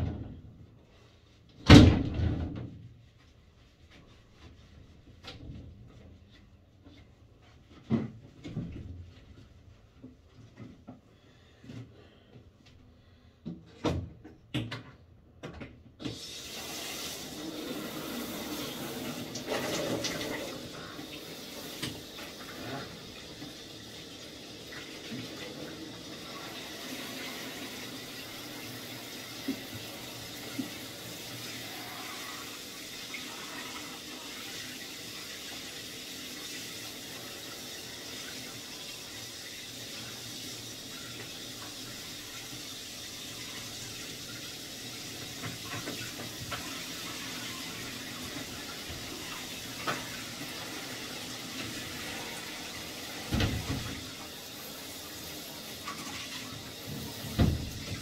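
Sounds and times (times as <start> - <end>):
tap water splashing into tub: 15.5 - 31.5, 39.8 - 58.0.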